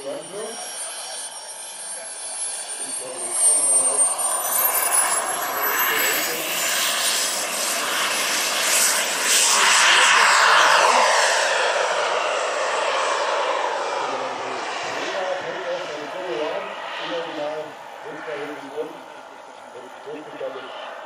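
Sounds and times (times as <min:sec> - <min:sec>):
jet rush: 0:00.0 - 0:21.0
model jet turbine whine: 0:00.0 - 0:21.0.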